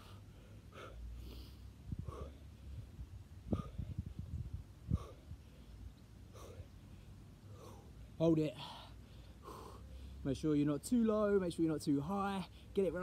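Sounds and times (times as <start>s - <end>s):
man breathing hard: 0.0s - 10.3s.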